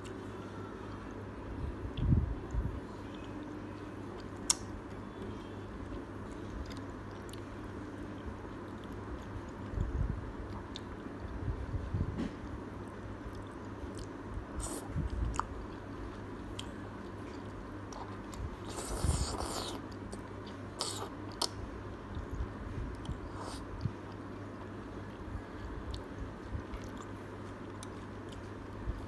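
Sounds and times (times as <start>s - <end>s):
wet chewing and mouth clicks: 25.8s - 28.5s.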